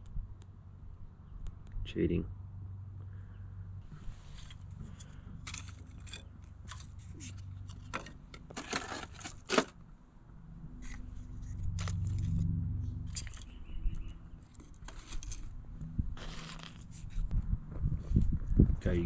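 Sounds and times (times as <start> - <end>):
kindling sticks clattering and scraping: 4.0 - 9.8, 10.8 - 13.6, 14.3 - 15.6, 16.2 - 17.3
low rumble: 10.2 - 14.4.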